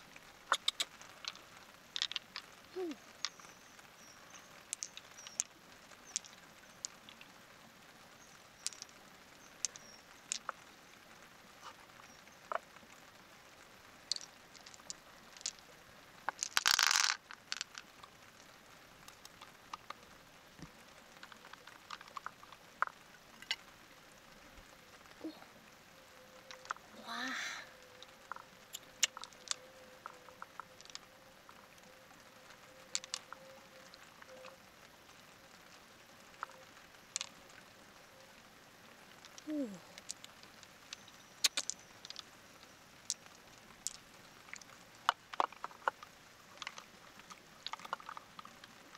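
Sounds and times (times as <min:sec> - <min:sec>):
mussel shells clicking: 0:00.5 - 0:03.5, 0:04.3 - 0:07.3, 0:08.6 - 0:10.6, 0:14.0 - 0:15.7, 0:16.3 - 0:20.0, 0:21.2 - 0:23.7, 0:26.4 - 0:26.8, 0:27.9 - 0:31.6, 0:32.8 - 0:34.6, 0:36.4 - 0:37.4, 0:39.2 - 0:42.3, 0:43.0 - 0:48.9.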